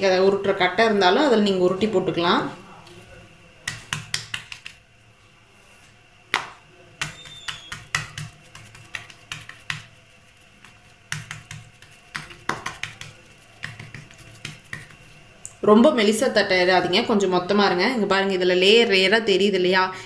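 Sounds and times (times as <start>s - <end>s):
hands slapping dough on countertop: 3.6s - 4.8s, 6.3s - 15.2s.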